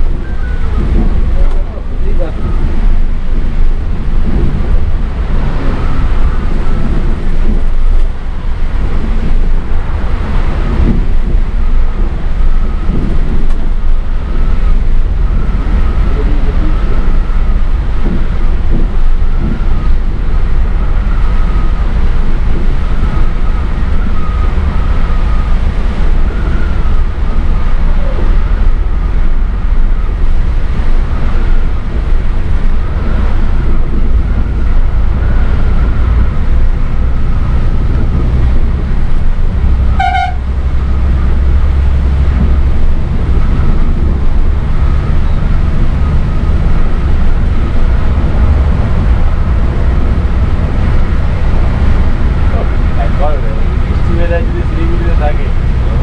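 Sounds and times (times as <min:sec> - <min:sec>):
diesel engine and road noise: 0:00.0 - 0:56.0.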